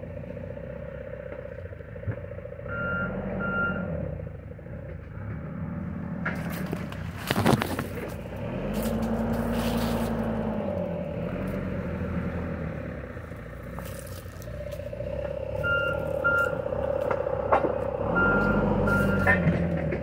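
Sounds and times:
vehicle engine revving: 0.0s - 20.0s
reversing alarm beeping: 2.7s - 3.9s, 15.6s - 16.6s, 18.0s - 19.4s.

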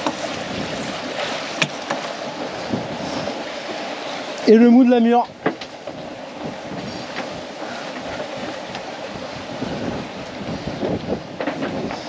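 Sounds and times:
sea water rushing around boat: 0.0s - 12.0s
wind rushing: 0.2s - 3.6s, 6.0s - 12.0s.

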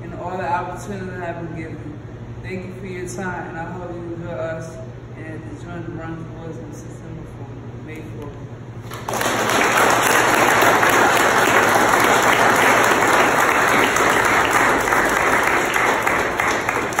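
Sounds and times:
small group applauding: 8.8s - 17.0s.

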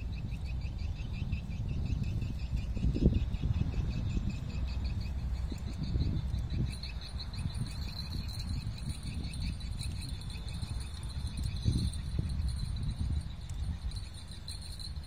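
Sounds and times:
wind buffeting microphone: 0.0s - 15.0s
insects trilling: 3.6s - 15.0s.

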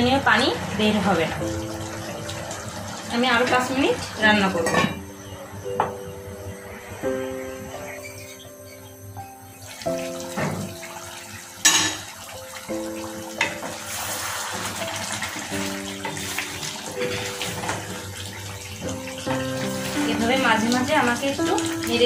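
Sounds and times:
background piano music: 0.0s - 22.0s
curry sizzling: 0.0s - 22.0s
metal pan lid clanking: 4.6s - 5.0s, 11.6s - 12.1s.

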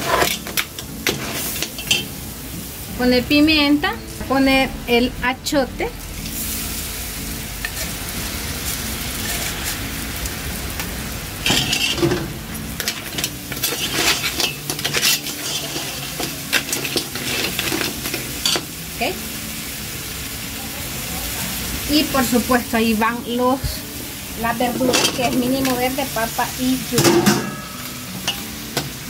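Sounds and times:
crab sizzling in pot: 0.0s - 29.0s
metal spoon scraping shells: 11.5s - 12.1s, 12.8s - 18.6s.

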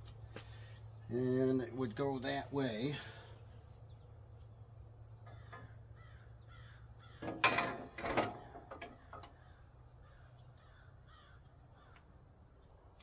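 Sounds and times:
crow cawing: 5.3s - 7.2s, 8.9s - 12.1s.

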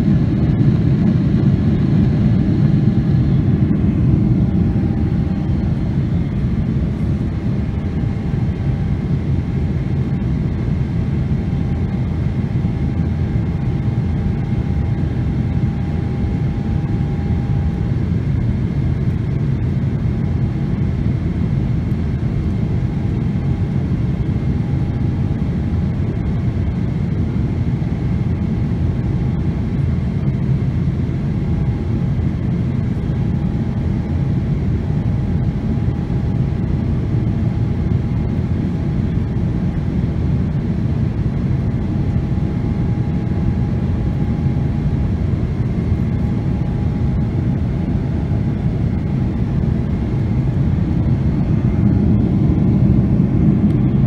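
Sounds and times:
faint whine: 0.0s - 54.0s
jet engine cabin rush: 0.1s - 7.2s, 45.5s - 54.0s.

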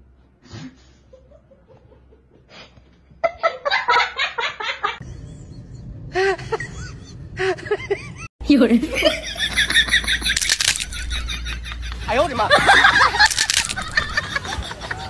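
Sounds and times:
low steady rumble: 3.2s - 15.0s
person laughing: 8.9s - 15.0s.

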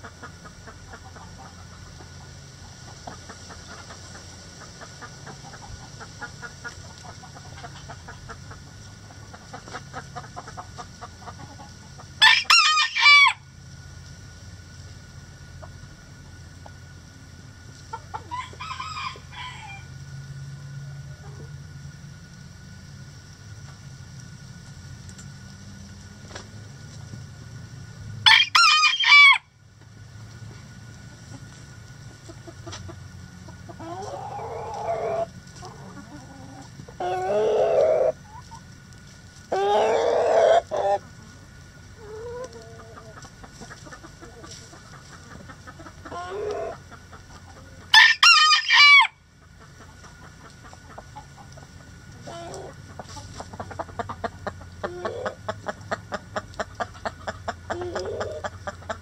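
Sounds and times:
hens clucking: 0.0s - 13.4s, 15.1s - 19.8s, 30.3s - 59.0s
roosters crowing: 3.1s - 13.6s, 18.0s - 20.4s, 28.2s - 29.6s, 32.7s - 38.4s, 39.4s - 59.0s.

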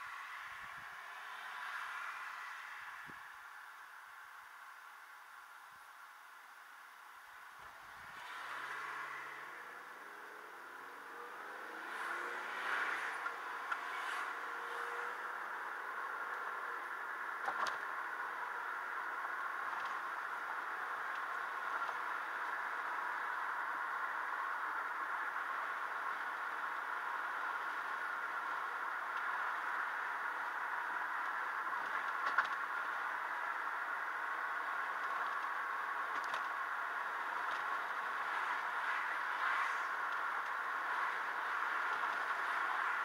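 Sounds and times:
car road and cabin noise: 0.0s - 43.0s.

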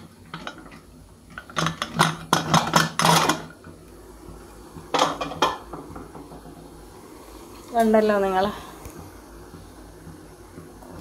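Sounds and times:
metal lid clanking and scraping: 0.3s - 3.5s, 4.9s - 6.3s.

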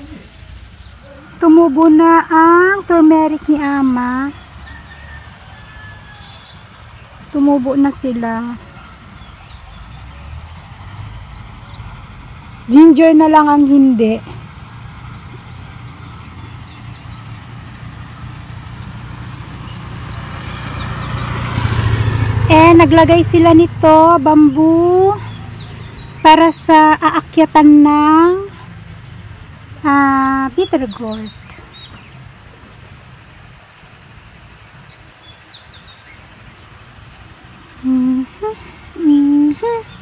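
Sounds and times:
steady hiss: 0.0s - 4.6s, 24.6s - 40.0s
vehicle engine approaching: 0.0s - 40.0s.

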